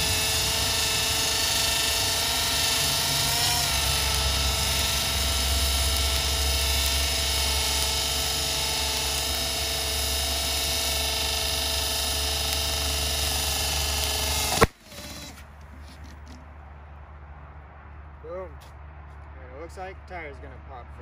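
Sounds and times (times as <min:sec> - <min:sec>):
electric motor whining: 0:00.0 - 0:16.4
tyre blowing with sharp pop: 0:14.5 - 0:15.5.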